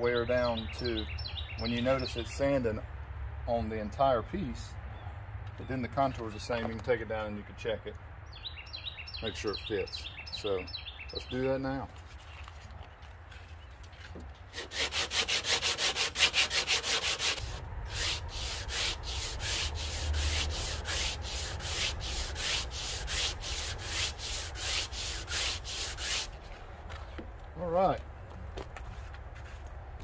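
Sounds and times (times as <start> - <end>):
resin rubbing on sandpaper: 14.5 - 26.4.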